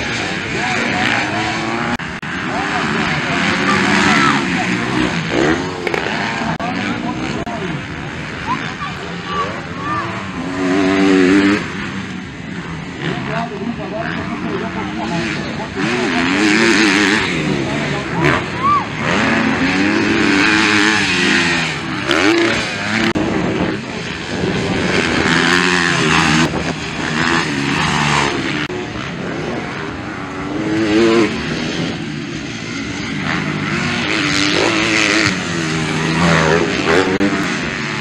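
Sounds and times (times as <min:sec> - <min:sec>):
motocross bike engines revving: 0:00.0 - 0:38.0.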